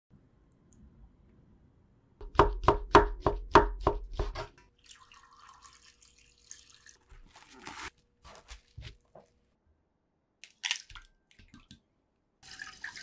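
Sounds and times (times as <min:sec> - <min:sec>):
water pouring into a glass dish: 0:04.8 - 0:07.1
plastic wrap crinkling: 0:07.1 - 0:09.5.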